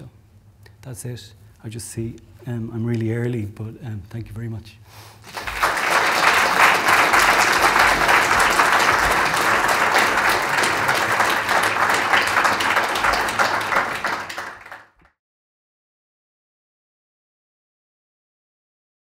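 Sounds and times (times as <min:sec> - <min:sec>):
audience applauding: 0:05.2 - 0:15.1.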